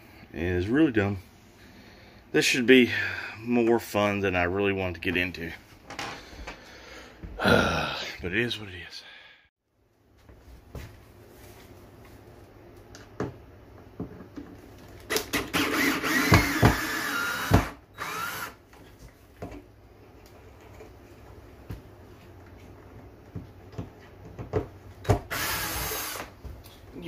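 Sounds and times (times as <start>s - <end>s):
cordless drill whining: 15.1s - 18.6s, 25.3s - 26.4s.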